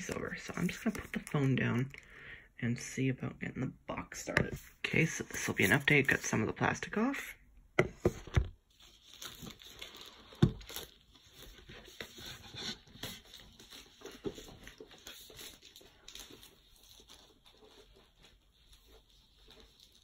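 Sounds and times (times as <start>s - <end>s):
plastic film crinkling: 0.0s - 2.1s, 8.6s - 20.0s.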